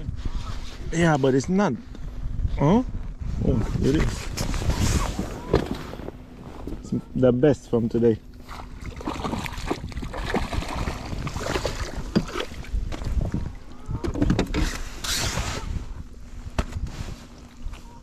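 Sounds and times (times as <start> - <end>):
wind rumble on microphone: 0.0 - 7.2, 7.8 - 18.0
fish splashing at water surface: 8.5 - 12.7.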